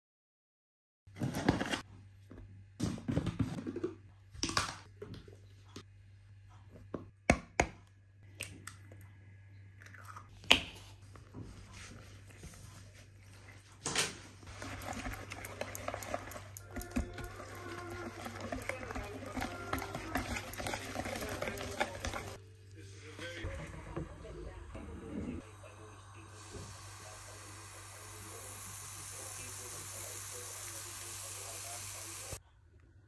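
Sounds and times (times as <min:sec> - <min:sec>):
whisk beating batter in bowl: 0:14.4 - 0:22.4
liquid pouring: 0:14.5 - 0:22.4.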